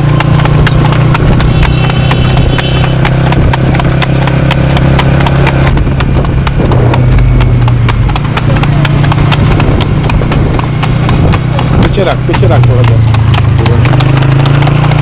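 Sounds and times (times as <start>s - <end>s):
horse hooves clip-clop on road: 0.0s - 15.0s
steady low rumble: 5.6s - 13.7s.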